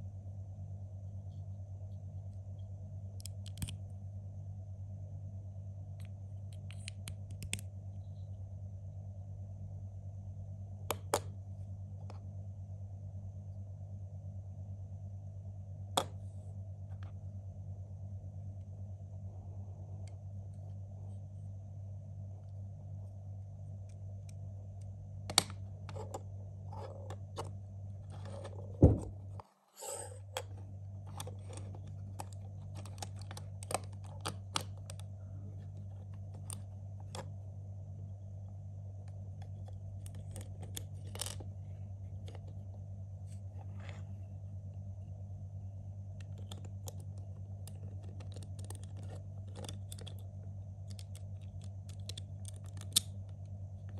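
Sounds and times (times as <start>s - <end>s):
steady low hum: 0.0s - 53.9s
plastic parts clicking together: 46.2s - 50.2s, 50.8s - 53.2s
plastic parts snapping: 50.8s - 53.2s.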